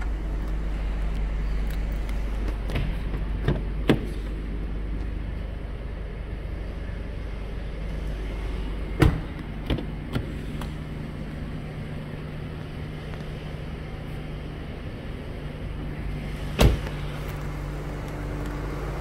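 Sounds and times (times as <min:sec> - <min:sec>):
steady low hum: 0:00.0 - 0:19.0
car door shutting thud: 0:08.9 - 0:10.8, 0:16.5 - 0:17.0.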